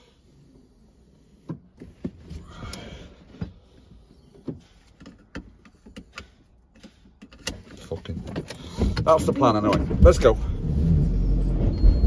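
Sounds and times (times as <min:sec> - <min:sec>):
seatbelt buckle clicks: 0:04.4 - 0:09.1.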